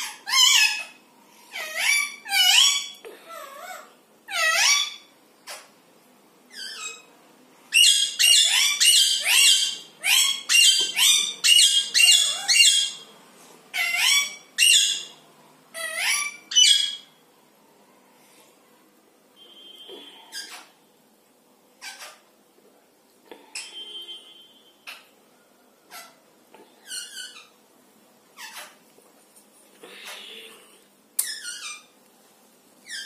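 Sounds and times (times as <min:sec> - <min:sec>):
parakeets harsh calls: 0:00.0 - 0:05.7, 0:07.7 - 0:13.1, 0:13.7 - 0:15.2, 0:15.8 - 0:17.2, 0:21.8 - 0:22.3, 0:28.3 - 0:28.8.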